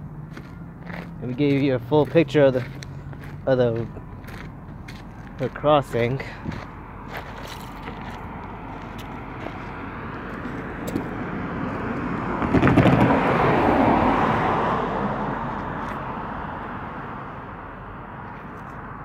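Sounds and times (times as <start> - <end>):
car driving past: 6.2 - 17.6.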